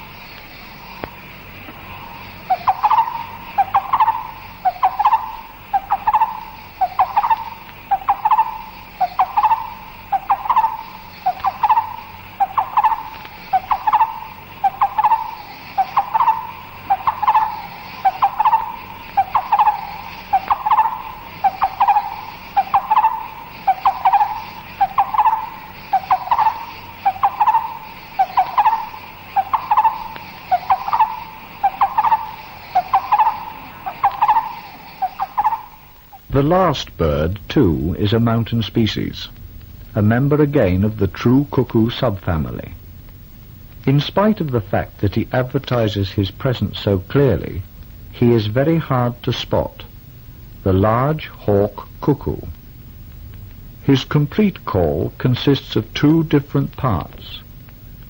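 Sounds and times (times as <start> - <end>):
barbet calling: 0.0 - 36.6
insects humming: 0.0 - 58.0.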